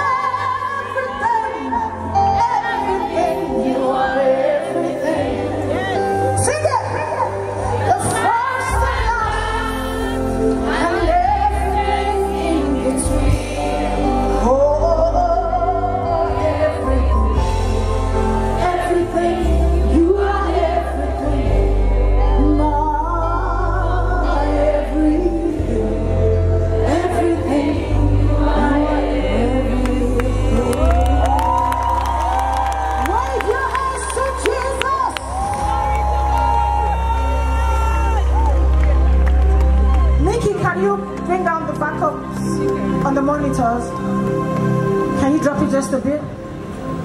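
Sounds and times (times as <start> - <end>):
congregation singing along: 0.0 - 6.4, 7.7 - 32.8
voices singing worship song: 0.0 - 32.6
gospel band with heavy bass: 0.0 - 47.0.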